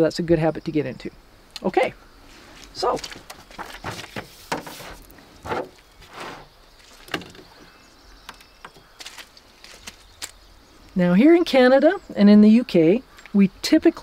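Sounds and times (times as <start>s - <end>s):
clothing rustling: 2.3s - 7.1s.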